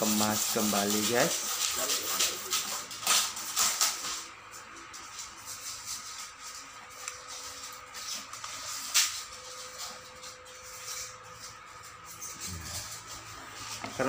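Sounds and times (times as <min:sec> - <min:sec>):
hands rubbing plastic: 0:00.0 - 0:14.0.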